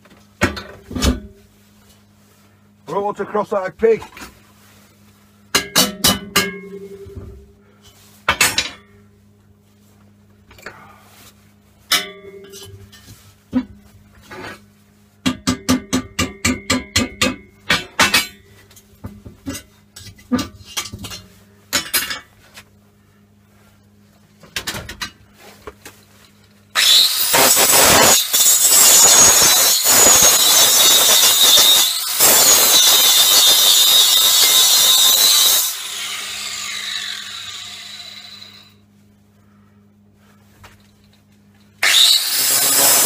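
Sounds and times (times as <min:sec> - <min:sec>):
angle grinder grinding metal: 0:26.8 - 0:38.8, 0:41.8 - 0:43.0.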